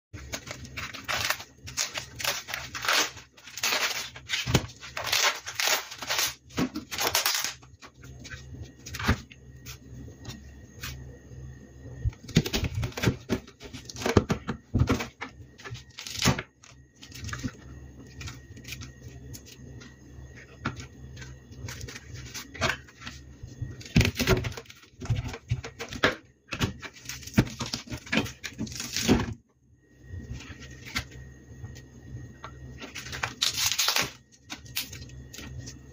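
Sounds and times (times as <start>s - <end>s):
corn husk crackling and tearing: 0.2s - 9.0s, 15.7s - 19.8s, 20.4s - 29.4s, 32.8s - 35.8s.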